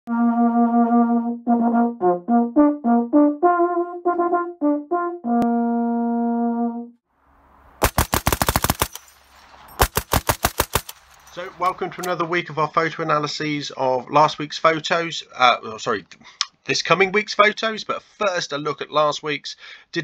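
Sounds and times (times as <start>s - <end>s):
brass instrument tune: 0.1s - 7.6s
machine gun bursts: 7.8s - 12.1s.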